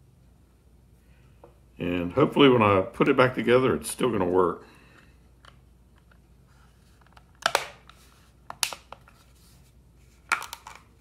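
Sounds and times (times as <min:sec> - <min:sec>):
plastic case clicking shut: 0:07.4 - 0:07.9.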